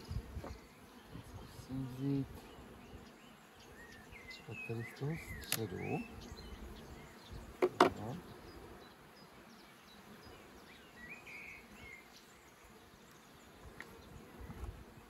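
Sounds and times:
bees buzzing: 0.0s - 15.0s
tool knocking on wooden frames: 7.6s - 8.0s.

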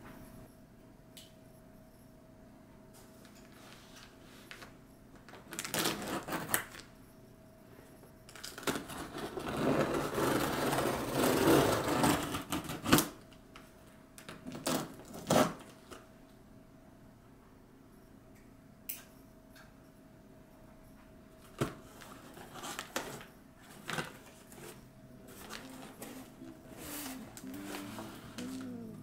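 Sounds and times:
packaging rustling: 22.0s - 28.6s.

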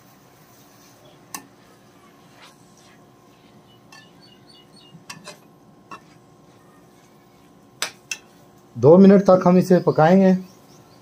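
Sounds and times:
metal spatula scraping a wok: 5.0s - 6.2s.

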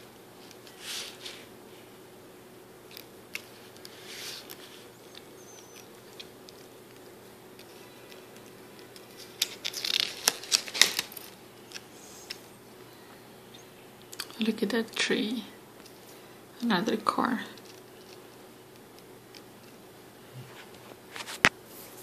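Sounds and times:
paper pages turning: 0.4s - 1.5s, 2.9s - 12.6s
paper rustling: 0.4s - 1.5s, 2.9s - 12.5s.

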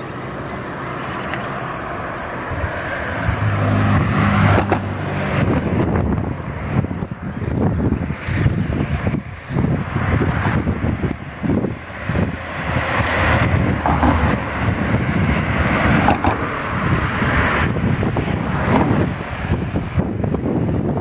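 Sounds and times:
car driving past: 0.0s - 6.9s
wind buffeting microphone: 1.4s - 21.0s.

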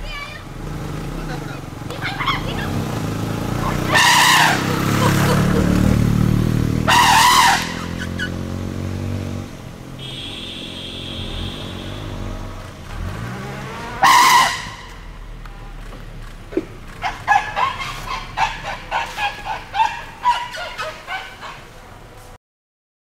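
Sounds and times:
motorcycle engine passing: 0.0s - 21.8s
loud shrill blasts: 6.9s - 8.0s, 14.0s - 15.0s.

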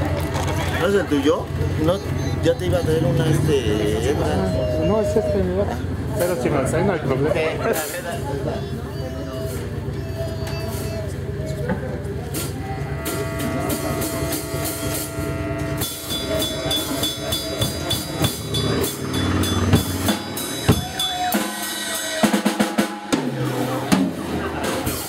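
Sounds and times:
drum kit: 12.2s - 25.0s
live band playing: 12.2s - 25.0s
drum fill of rapid hits: 12.4s - 25.0s.

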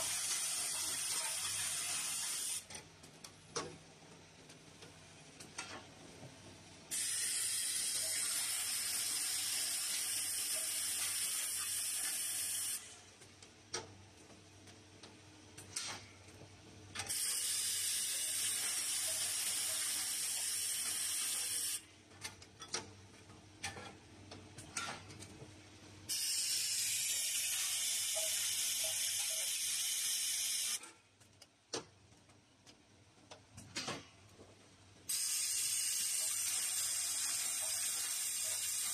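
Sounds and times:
machine clicks and ticks: 0.0s - 5.9s, 7.7s - 25.5s, 26.1s - 34.5s, 35.1s - 38.9s.

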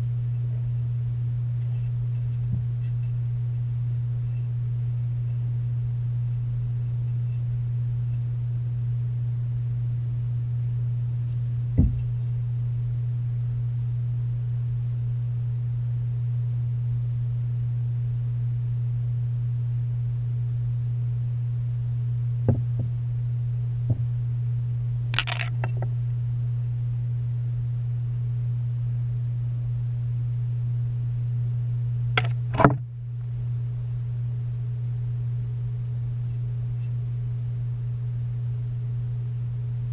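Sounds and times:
aquarium filter pump hum: 0.0s - 39.9s
sharp knocks and taps: 11.8s - 12.1s, 32.2s - 32.8s.

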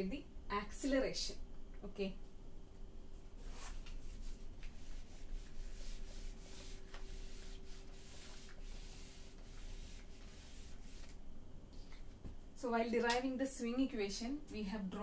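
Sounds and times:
duster rubbing whiteboard: 3.4s - 11.2s.

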